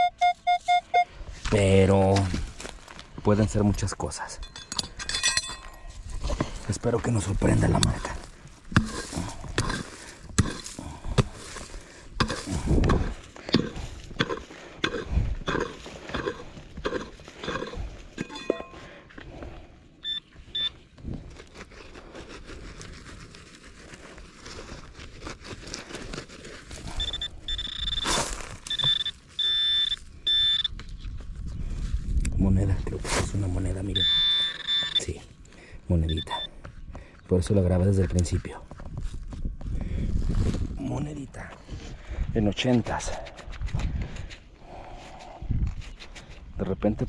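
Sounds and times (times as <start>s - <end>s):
metal detector beeps: 0.0s - 1.1s, 17.4s - 18.8s, 20.0s - 20.8s, 26.9s - 30.8s, 33.8s - 35.2s, 36.0s - 36.5s
digging tool striking soil and stones: 7.6s - 18.8s, 27.8s - 29.2s.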